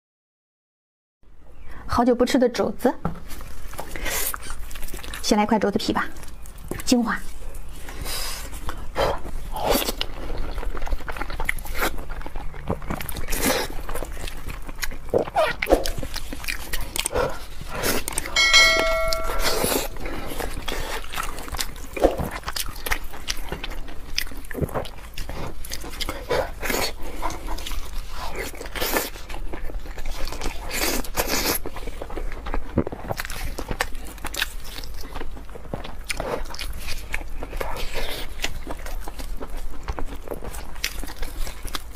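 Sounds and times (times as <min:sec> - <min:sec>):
person chewing: 0:09.5 - 0:18.3, 0:21.1 - 0:41.9
short ringing chime: 0:18.4 - 0:20.2.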